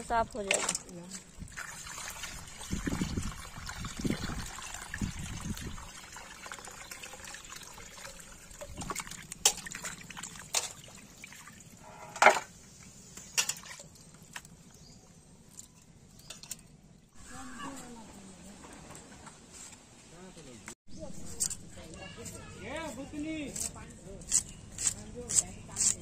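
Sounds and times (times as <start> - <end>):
water running into steel bowl: 1.4 - 11.7.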